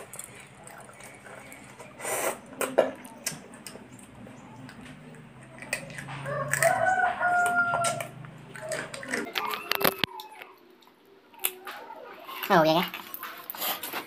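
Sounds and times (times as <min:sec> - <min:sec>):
wet sucking eating sounds: 0:01.0 - 0:02.6.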